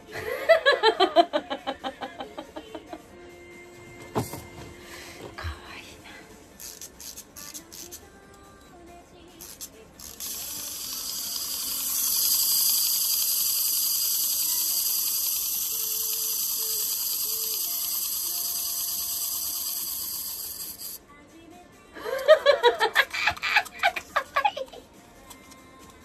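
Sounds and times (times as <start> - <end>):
wind-up toy clicks: 6.6 - 8.4, 9.4 - 21.0, 22.2 - 26.0
clockwork motor whirring: 9.4 - 21.0.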